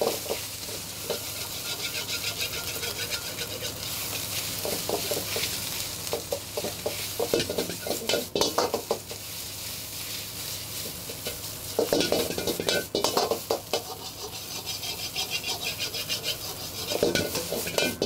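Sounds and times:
metal ladle scraping a wok: 0:00.0 - 0:09.2, 0:10.2 - 0:18.0
hot oil sizzling: 0:00.0 - 0:18.0.

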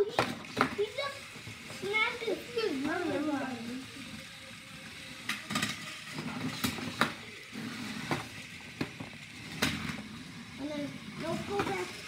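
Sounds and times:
plastic clacks: 0:00.0 - 0:01.9, 0:05.2 - 0:07.3, 0:08.0 - 0:10.1
low whir of small motors: 0:00.0 - 0:12.0.

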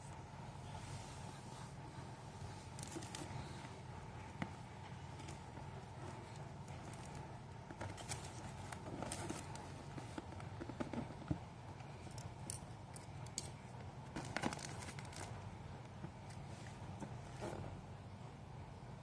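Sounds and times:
cellophane crinkling: 0:12.1 - 0:16.5.

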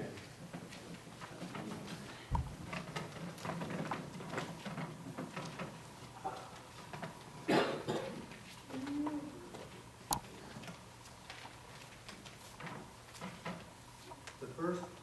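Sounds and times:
people shuffling and knocking: 0:00.0 - 0:15.0
dull thump: 0:02.3 - 0:02.7.

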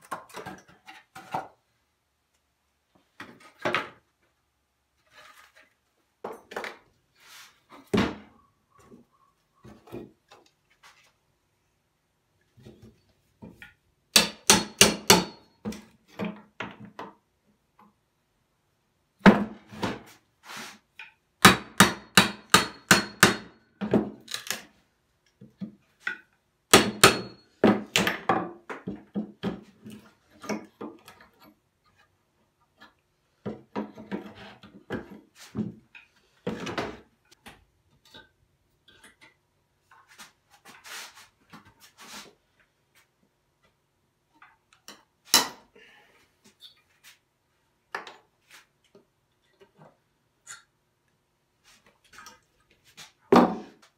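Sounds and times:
hammer on metal: 0:14.2 - 0:15.4, 0:21.4 - 0:23.5, 0:26.7 - 0:27.4.

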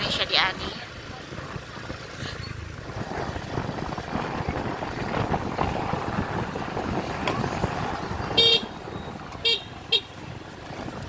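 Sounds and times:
crowd hubbub: 0:00.0 - 0:11.0
street traffic: 0:00.0 - 0:11.0
vehicle horn toots: 0:08.3 - 0:10.2.

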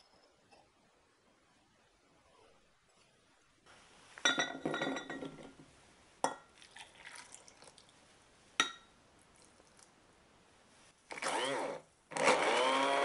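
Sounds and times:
glass clinking: 0:04.2 - 0:05.6, 0:08.6 - 0:08.9
water pouring into glass jug: 0:06.6 - 0:07.9.

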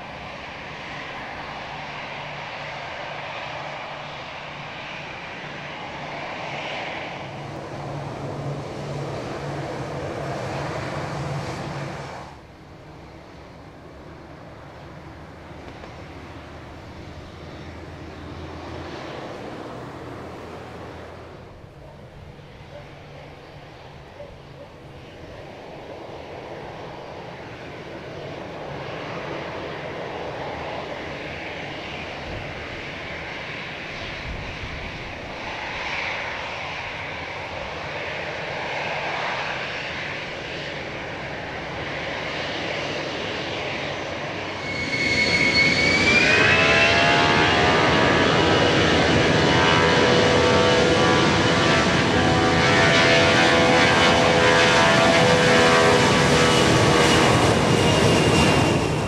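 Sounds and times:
aircraft engine drone: 0:00.0 - 0:59.0
aircraft engine whine: 0:00.0 - 0:59.0.

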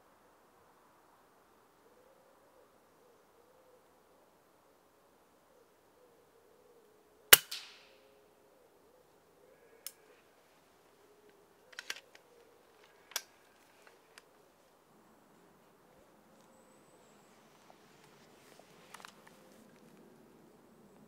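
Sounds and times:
air rifle shot: 0:07.3 - 0:08.1.

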